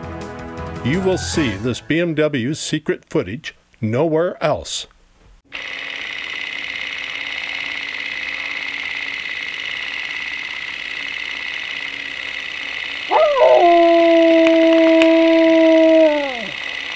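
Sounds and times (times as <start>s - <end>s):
dog howling: 13.1s - 16.6s.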